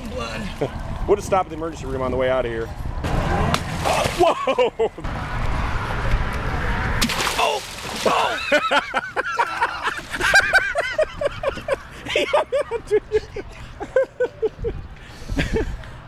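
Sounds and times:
fish splashing in water: 7.0 - 8.7
hearty laughter: 8.3 - 15.9.

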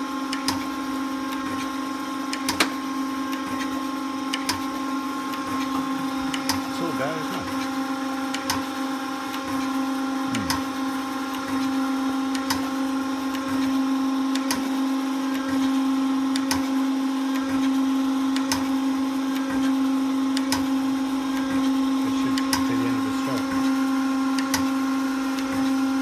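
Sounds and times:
sharp click of hydraulic feed: 0.3 - 0.7, 2.3 - 4.7, 15.3 - 16.7, 18.3 - 18.7, 20.3 - 20.7, 24.4 - 24.8
hydraulic system humming: 0.3 - 16.6, 19.4 - 26.0.

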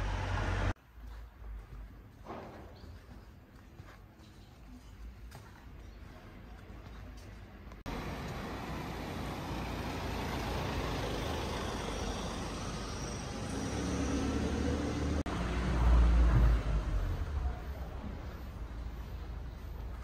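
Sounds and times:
cars driving along street: 0.0 - 0.8, 7.0 - 20.0
low engine rumble: 7.0 - 20.0.

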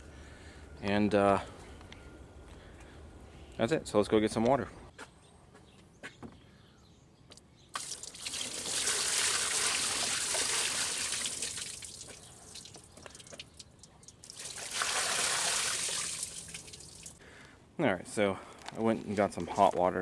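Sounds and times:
water pouring and splashing: 7.8 - 17.2.

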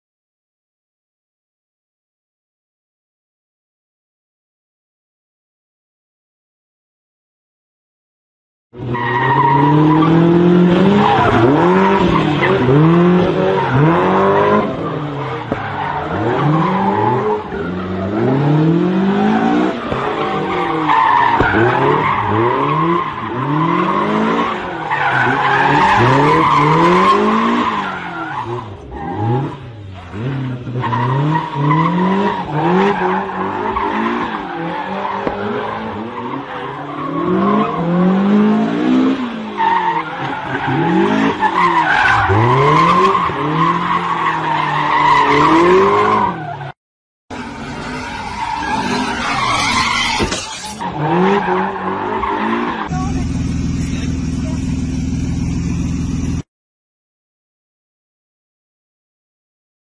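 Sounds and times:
car engine revving: 8.8 - 46.4, 47.3 - 56.4
tyres squealing on pavement: 10.9 - 18.3, 19.2 - 37.8, 39.6 - 46.7, 47.3 - 54.2.

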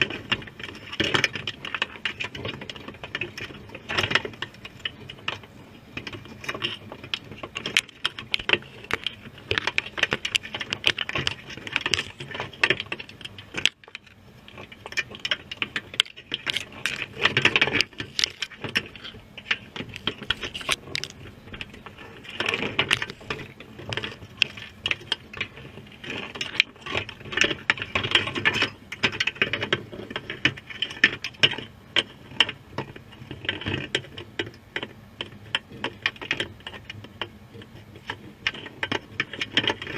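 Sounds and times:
underwater crackling clicks: 16.0 - 23.5.

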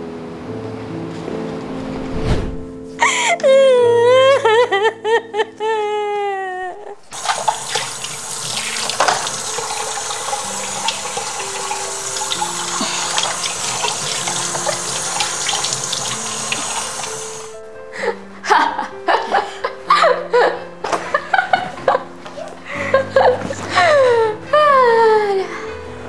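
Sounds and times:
woman sobbing and wailing: 3.0 - 7.1, 17.9 - 21.3, 22.6 - 25.6
held music tones: 6.8 - 18.6
tap running into sink: 7.1 - 17.5.

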